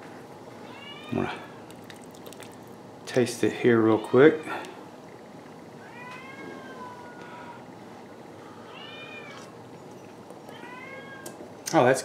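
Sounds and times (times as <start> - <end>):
cat meowing: 0.7 - 1.4, 5.8 - 7.6, 8.7 - 9.5, 10.5 - 11.4.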